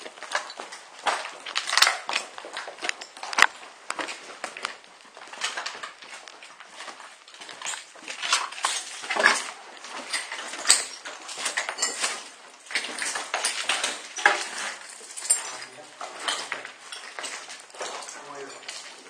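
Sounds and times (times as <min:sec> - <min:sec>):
footsteps crunching over debris: 0:00.0 - 0:19.0
sharp clinks and scrapes: 0:07.5 - 0:19.0.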